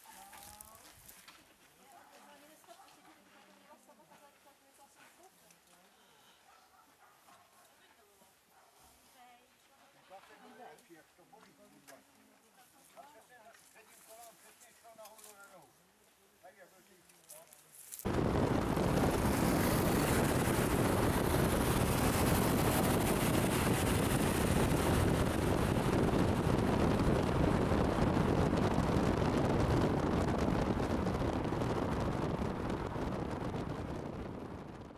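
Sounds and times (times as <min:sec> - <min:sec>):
wind and road noise: 0:18.0 - 0:34.9.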